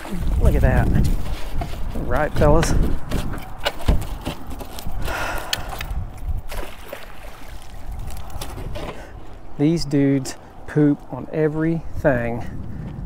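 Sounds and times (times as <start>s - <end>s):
water splashing and trickling: 0.0s - 2.0s, 5.8s - 9.5s.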